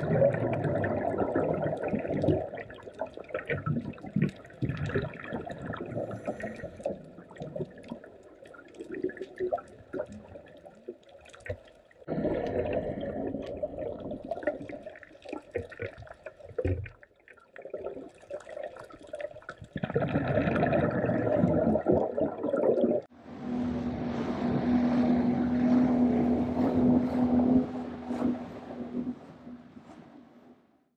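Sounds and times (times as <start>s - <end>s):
diver exhaling bubbles underwater: 0.0s - 10.6s, 12.1s - 17.0s, 17.6s - 23.1s
wind and water noise: 0.0s - 17.0s, 19.6s - 30.8s
motorboat engine hum: 23.0s - 30.8s.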